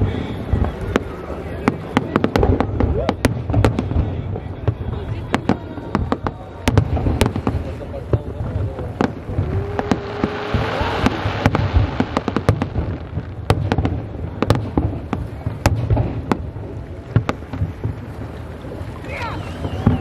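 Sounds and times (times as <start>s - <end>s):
fireworks bangs and crackles: 0.0s - 20.0s
hissing rush: 6.4s - 13.4s
low rumble: 7.0s - 13.4s.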